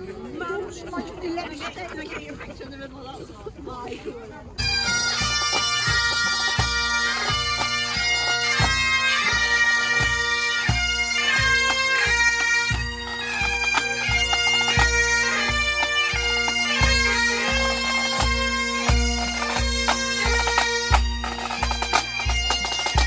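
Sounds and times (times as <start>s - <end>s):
bagpipes playing: 4.6s - 23.0s.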